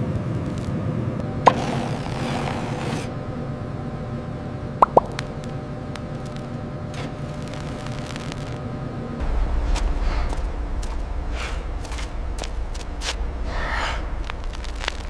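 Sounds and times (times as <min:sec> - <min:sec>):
furnace low rumble: 0:00.0 - 0:15.0
molten metal plops: 0:04.8 - 0:07.2
faint crackles: 0:04.8 - 0:15.0.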